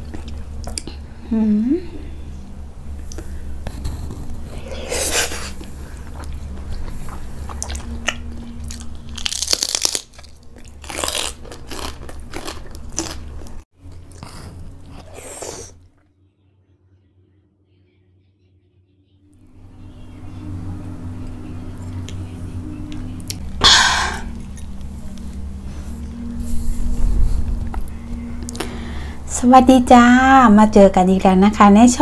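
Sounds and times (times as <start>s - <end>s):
steady low hum: 0.0s - 32.0s
wet chewing: 5.1s - 15.2s
crunching bites: 7.5s - 13.6s.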